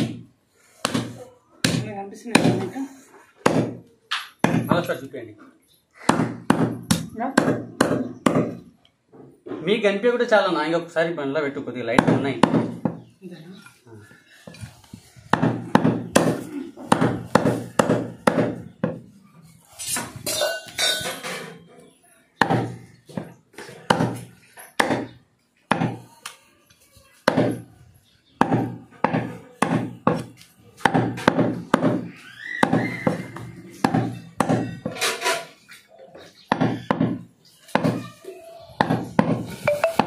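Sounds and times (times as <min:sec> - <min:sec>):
cleaver chopping meat and bone: 0:00.8 - 0:02.7, 0:03.4 - 0:03.8, 0:04.4 - 0:04.8, 0:06.0 - 0:08.6, 0:11.9 - 0:13.0, 0:15.3 - 0:19.0, 0:22.4 - 0:26.1, 0:27.3 - 0:27.6, 0:28.4 - 0:35.0, 0:36.5 - 0:38.1, 0:38.8 - 0:39.5.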